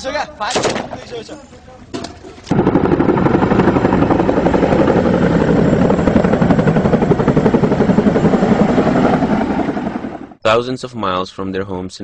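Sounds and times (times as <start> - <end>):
helicopter rotor and engine noise: 2.0 - 10.4.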